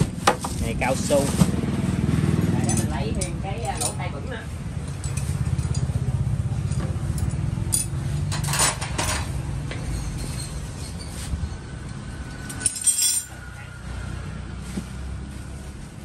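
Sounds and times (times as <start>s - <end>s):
metal parts clinking: 4.8s - 6.0s, 6.6s - 11.2s, 11.9s - 13.4s.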